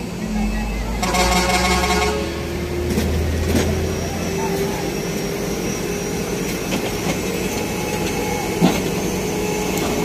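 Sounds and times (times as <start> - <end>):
crane engine running: 0.0 - 10.0.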